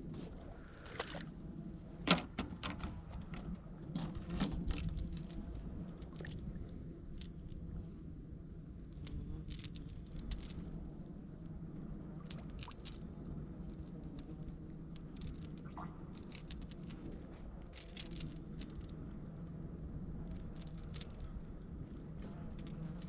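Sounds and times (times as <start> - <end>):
low steady hum: 0.0 - 23.0
small clicks and knocks: 2.0 - 6.4.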